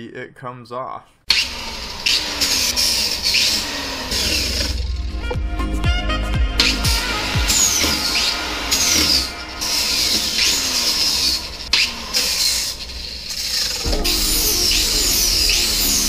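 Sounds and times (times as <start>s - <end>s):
angle grinder sanding fiberglass: 1.3s - 4.8s, 6.6s - 16.0s.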